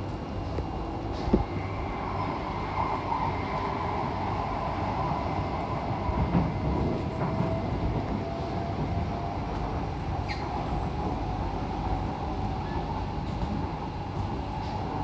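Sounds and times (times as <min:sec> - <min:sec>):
faint steady whine: 0:00.0 - 0:15.0
wheels rumbling on rail: 0:00.0 - 0:15.0
train passing: 0:00.7 - 0:15.0.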